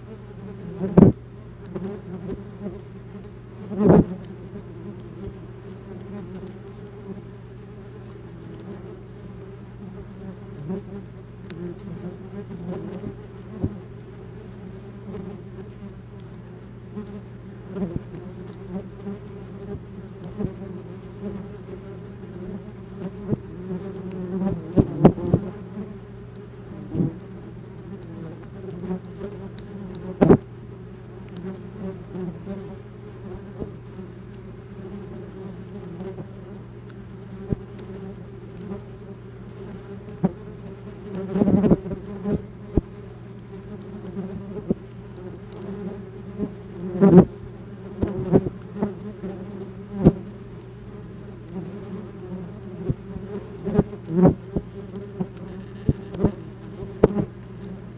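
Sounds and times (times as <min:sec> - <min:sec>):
wasps buzzing: 0:00.0 - 0:57.9
wasps knocking on camera: 0:29.9 - 0:30.5, 0:52.8 - 0:57.7.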